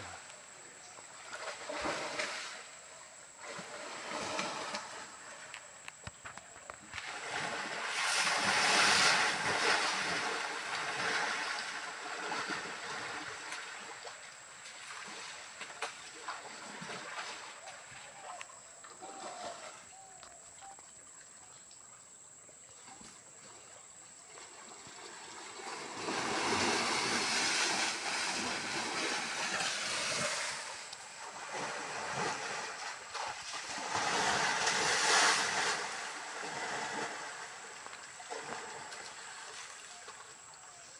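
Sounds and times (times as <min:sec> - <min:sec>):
stream water rushing and splashing: 0:06.9 - 0:18.3, 0:24.4 - 0:40.7.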